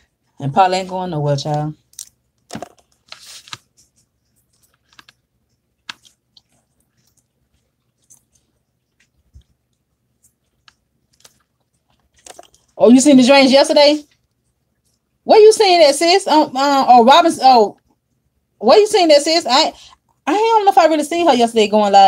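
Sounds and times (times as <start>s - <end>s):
chewing: 4.4s - 12.8s.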